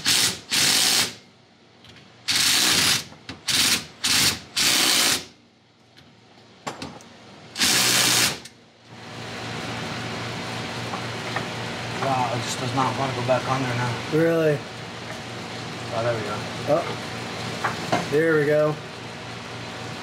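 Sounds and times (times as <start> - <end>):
power tool bursts: 0.0 - 1.2, 2.3 - 5.3, 7.6 - 8.5.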